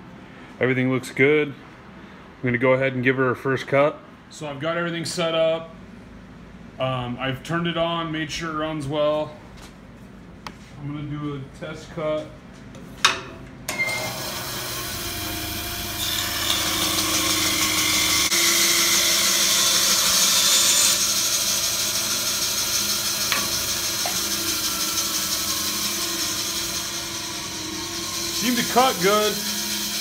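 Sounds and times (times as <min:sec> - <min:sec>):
bandsaw cutting wood: 0:13.7 - 0:30.0.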